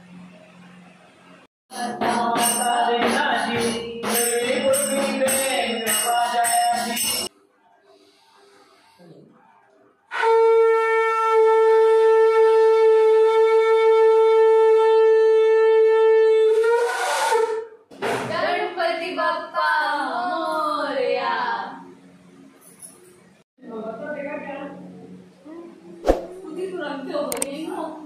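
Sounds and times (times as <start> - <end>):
person singing: 1.7 - 7.3
tambourine jingling: 2.1 - 7.3
conch shell blown: 10.1 - 17.8.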